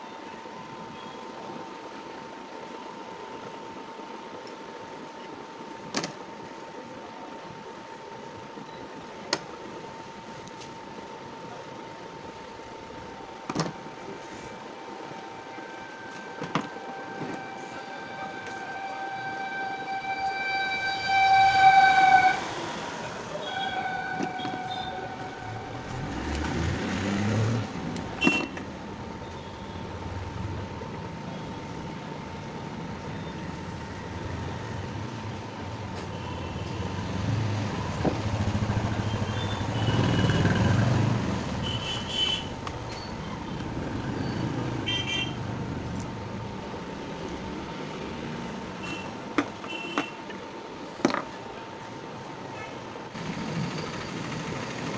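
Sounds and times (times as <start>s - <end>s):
passing traffic rumbling: 16.8s - 51.6s
vehicle horn blasts: 17.4s - 22.5s, 23.3s - 25.8s, 28.2s - 28.6s, 41.6s - 42.6s, 44.8s - 45.4s, 48.8s - 50.2s.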